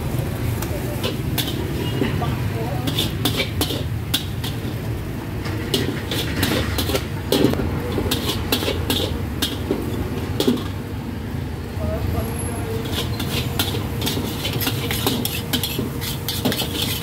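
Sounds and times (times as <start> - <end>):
low rumble of traffic: 0.0 - 17.0
cooking utensils clinking: 1.0 - 4.7, 5.7 - 10.8.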